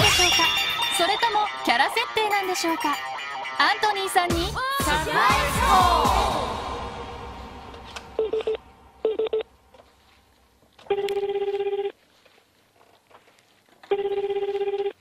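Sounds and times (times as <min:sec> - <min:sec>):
telephone ringback tone: 0:08.2 - 0:09.5, 0:10.9 - 0:12.0, 0:13.9 - 0:15.0.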